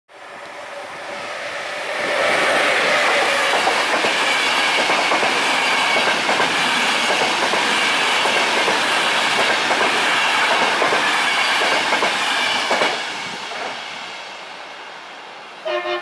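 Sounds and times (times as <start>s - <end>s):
train wheels rushing and clattering: 1.6s - 14.0s.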